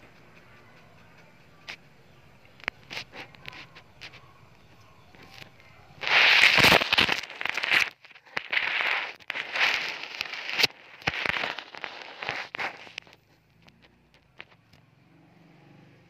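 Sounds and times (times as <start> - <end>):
gecko hissing: 6.0 - 13.1.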